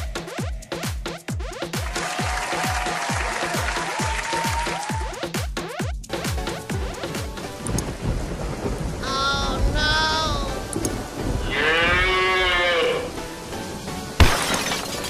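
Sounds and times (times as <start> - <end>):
cartoon cow mooing: 11.4 - 13.1.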